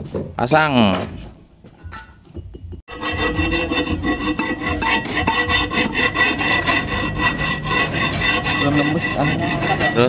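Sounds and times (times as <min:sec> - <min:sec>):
metal shaft scraping metal: 0:02.9 - 0:10.0.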